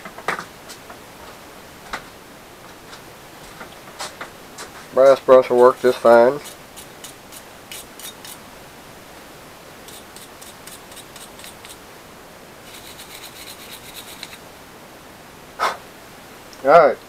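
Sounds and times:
wire brush scrubbing metal: 5.8 - 8.4, 9.8 - 11.8, 12.6 - 14.4.

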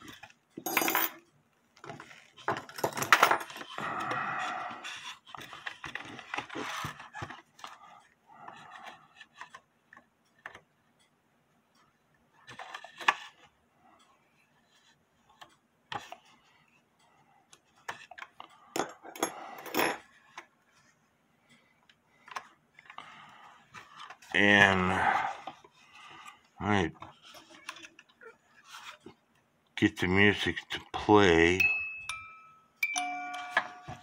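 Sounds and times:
small clicks taps and scrapes: 4.8 - 18.6, 20.0 - 24.3.

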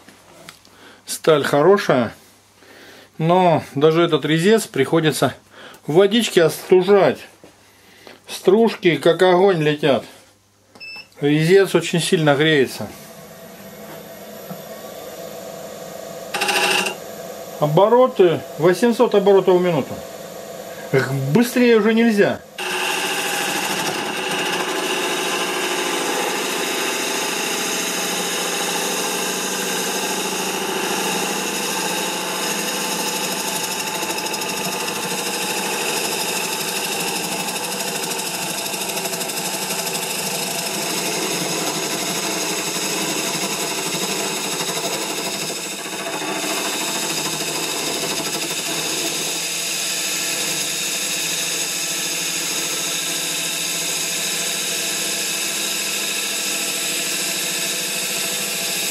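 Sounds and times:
wood lathe running: 16.2 - 20.4, 22.6 - 58.9
gouge scraping wood on lathe: 22.6 - 51.0, 56.8 - 58.9.

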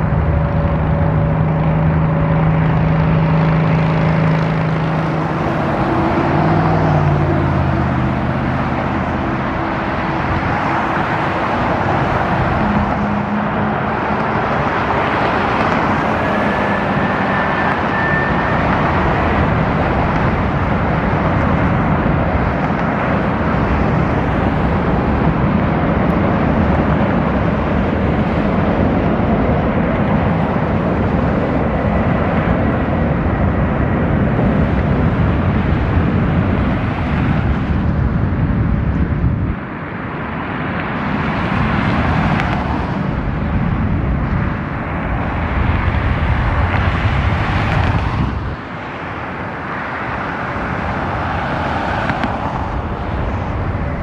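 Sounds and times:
jet engines roaring: 0.0 - 54.0.

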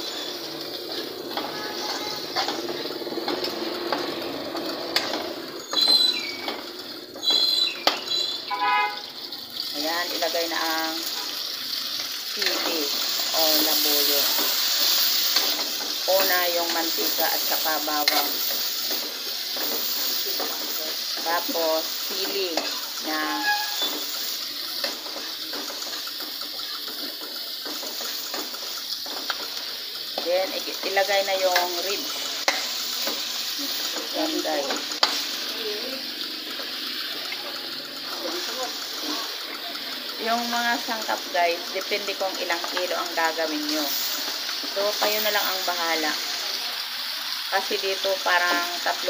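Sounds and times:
garlic sizzling in oil: 0.0 - 49.0
metal spatula scraping pan: 13.8 - 29.4.

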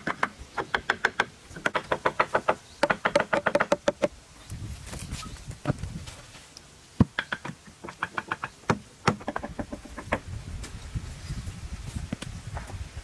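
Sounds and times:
wooden club knocking timber: 0.8 - 4.1, 7.0 - 10.2.

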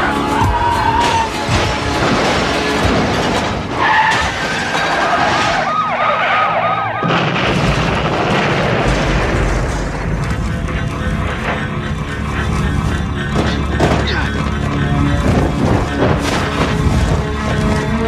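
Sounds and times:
low rumble of burning wreck: 1.4 - 18.0
police siren wailing: 4.7 - 7.4
car explosion blast: 7.0 - 10.5.

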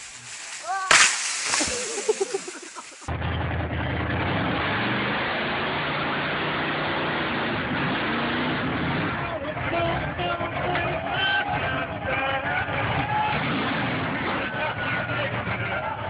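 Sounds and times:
people speaking: 0.0 - 3.1, 9.2 - 12.8
truck engine running loud: 3.1 - 16.0.

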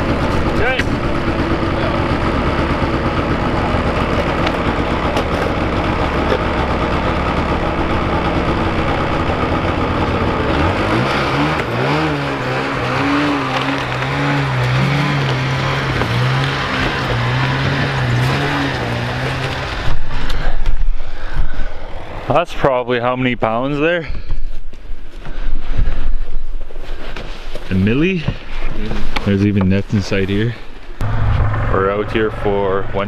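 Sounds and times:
vehicle engine idling and revving: 0.0 - 23.0, 30.8 - 33.0.

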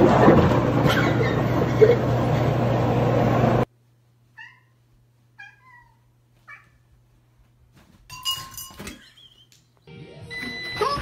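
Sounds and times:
cat meowing: 4.4 - 4.8, 5.4 - 6.8.

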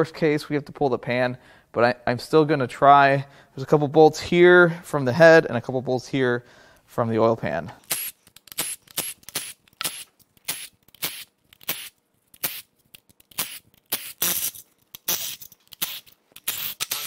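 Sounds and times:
cordless ratchet bursts: 7.8 - 17.0.

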